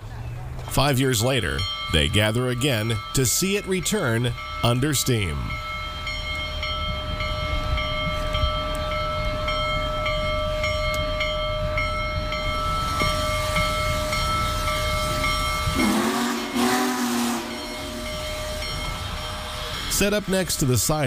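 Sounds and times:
steam locomotive rumble: 0.0 - 21.0
deep chime steam whistle: 1.4 - 21.0
steam hiss: 12.6 - 21.0.

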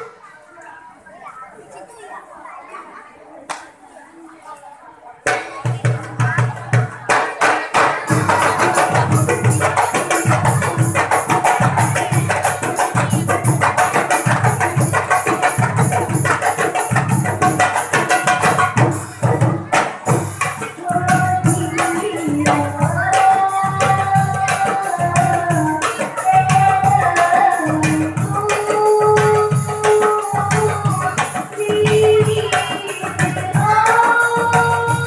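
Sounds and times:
hand drums in fast rhythm: 5.2 - 35.0
person singing: 20.8 - 35.0.

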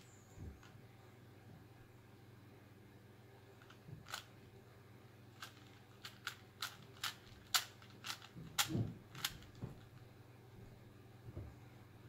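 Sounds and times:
puzzle cube plastic clicks: 5.4 - 9.6.

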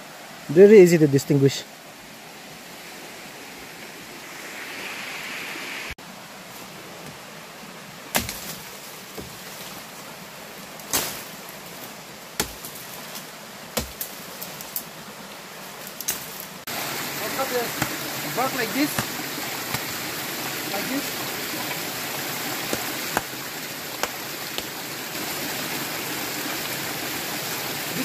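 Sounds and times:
stream rushing: 0.0 - 28.0
footsteps through undergrowth: 8.2 - 14.9
dry twigs snapping: 10.8 - 14.9, 15.8 - 16.5.

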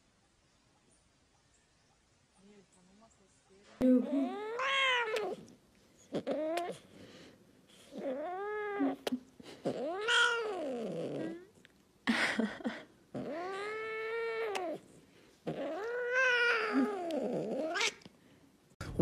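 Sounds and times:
kitten meowing: 4.3 - 5.4, 9.8 - 11.0, 13.2 - 14.8, 15.5 - 18.0.

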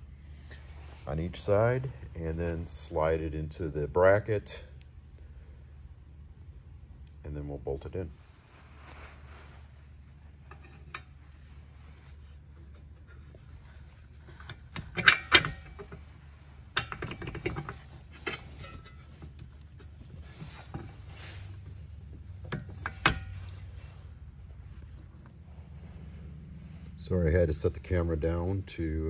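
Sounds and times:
metal clinks and knocks: 12.6 - 26.5.

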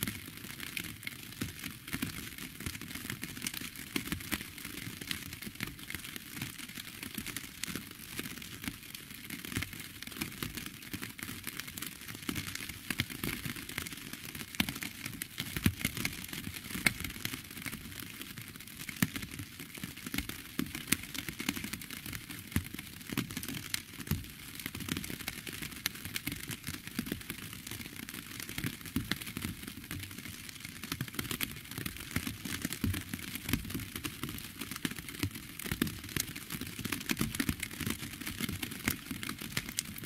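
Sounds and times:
steady rain drops: 0.0 - 40.0.

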